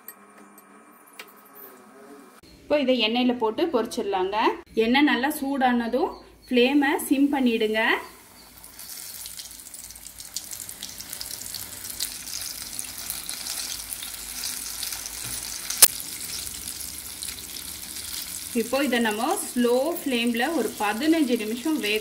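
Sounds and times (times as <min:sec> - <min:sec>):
chicken deep-frying in oil: 0:07.7 - 0:22.0.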